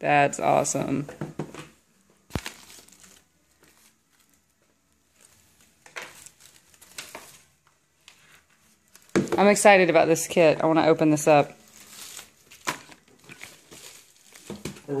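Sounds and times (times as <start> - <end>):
cardboard box rustling: 11.7 - 14.9.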